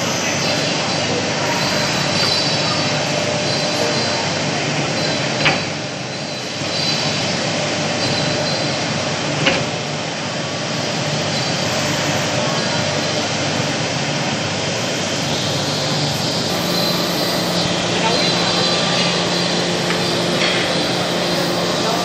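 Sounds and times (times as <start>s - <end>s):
lathe sanding brush running: 14.9s - 22.0s.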